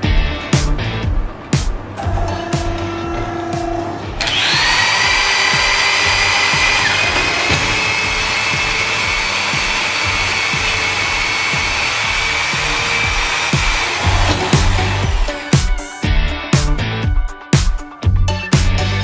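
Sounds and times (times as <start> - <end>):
grinding metal: 2.0 - 15.6
drill press high whine: 2.3 - 15.5.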